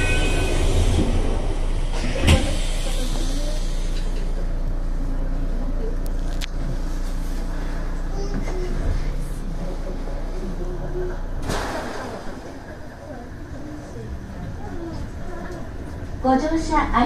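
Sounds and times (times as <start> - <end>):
train doors shutting thud: 0.0 - 3.1
train equipment humming: 0.0 - 11.4.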